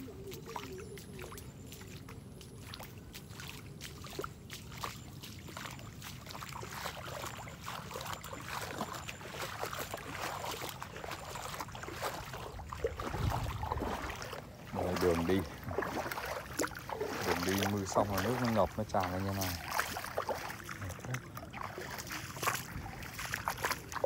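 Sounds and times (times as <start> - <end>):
walking through wet grass: 0.0 - 24.0
wind rumbling on microphone: 11.7 - 20.0.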